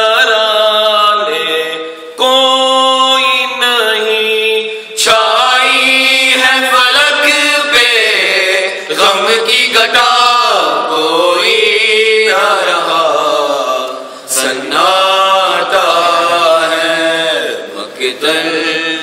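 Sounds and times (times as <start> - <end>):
men chanting a lament: 0.0 - 19.0.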